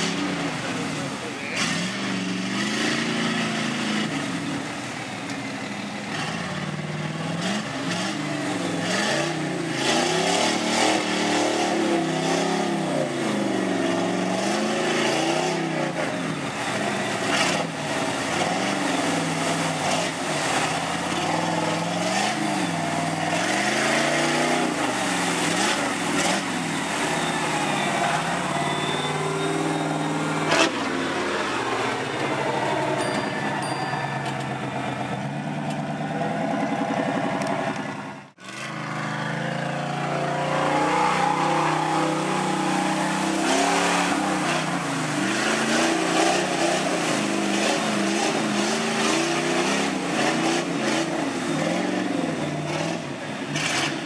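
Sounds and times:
pickup truck engine revving: 0.0s - 4.9s, 5.6s - 33.0s, 34.6s - 54.0s.

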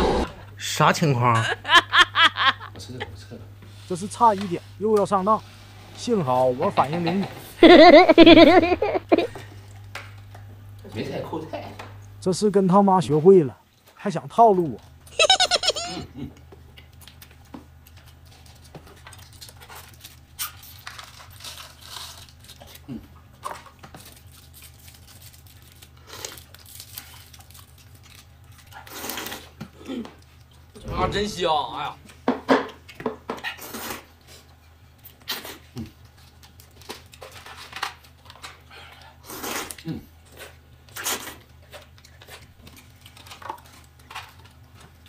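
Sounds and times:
person slurping noodles: 0.0s - 0.4s
steady low hum: 0.0s - 13.6s, 29.7s - 32.8s.

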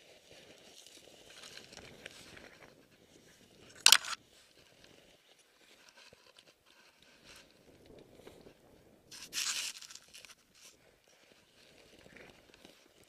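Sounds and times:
snow and twigs crunching: 0.0s - 8.5s, 9.1s - 13.0s
loud sharp crunch: 3.7s - 4.2s.

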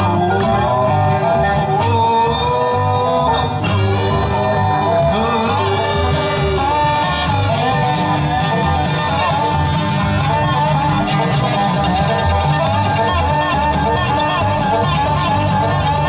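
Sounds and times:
banjo: 0.0s - 16.0s
bluegrass band playing: 0.0s - 16.0s
fiddle: 0.0s - 16.0s
plucked upright bass: 0.0s - 16.0s.

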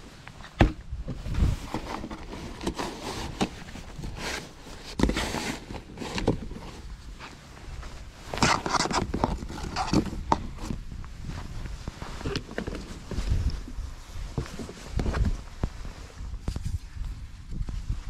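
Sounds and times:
rustling: 0.0s - 17.0s
knocks and scrapes of handled gear: 0.3s - 7.4s, 8.2s - 10.8s, 12.0s - 13.6s.

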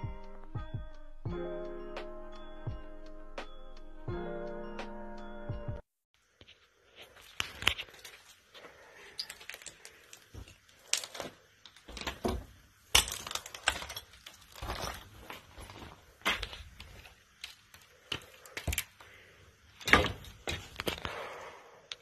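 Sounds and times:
footsteps crunching on debris: 6.4s - 19.1s, 19.8s - 21.1s
wood snapping and cracking: 7.4s - 19.2s, 19.8s - 21.2s.

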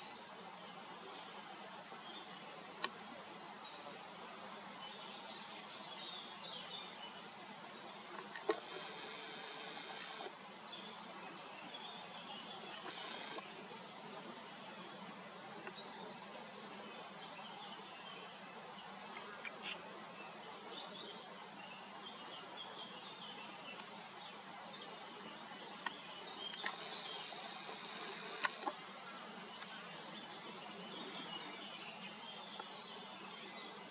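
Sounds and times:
steady low hiss: 0.0s - 33.9s
sharp clicks: 28.2s - 28.7s.

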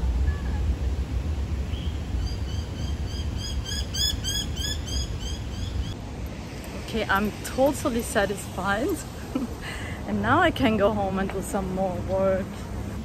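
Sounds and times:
steady low rumble: 0.0s - 13.0s
bird chirping: 1.7s - 6.0s.

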